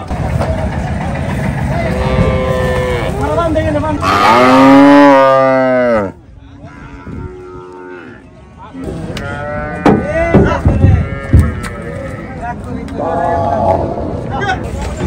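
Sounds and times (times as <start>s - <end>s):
cow mooing: 2.0s - 3.3s, 4.0s - 8.3s, 9.2s - 10.1s
sharp knocks: 9.8s - 11.6s.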